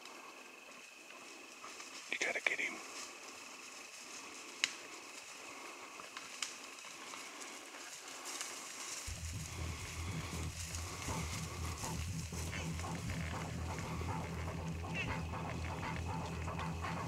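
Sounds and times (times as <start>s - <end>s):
steady low rumble: 9.0s - 17.0s.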